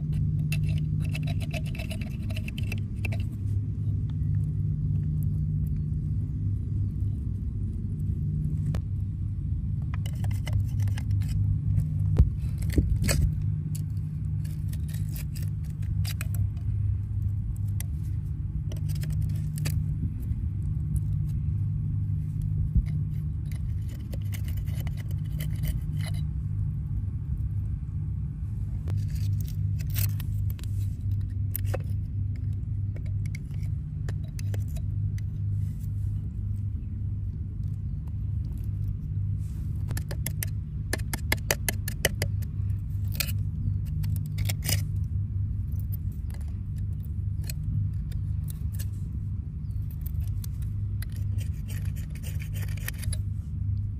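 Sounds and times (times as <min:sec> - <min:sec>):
metal tool scraping oyster shells: 0:00.0 - 0:03.4, 0:10.0 - 0:16.6, 0:17.6 - 0:20.0, 0:22.6 - 0:26.4, 0:28.9 - 0:35.4, 0:38.5 - 0:45.1, 0:45.7 - 0:53.4
steady low rumble: 0:00.0 - 0:53.9.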